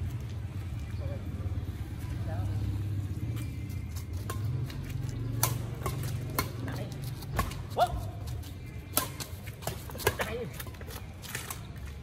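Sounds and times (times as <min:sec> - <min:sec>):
racket hitting shuttlecock: 0:04.2 - 0:08.0, 0:08.9 - 0:10.8.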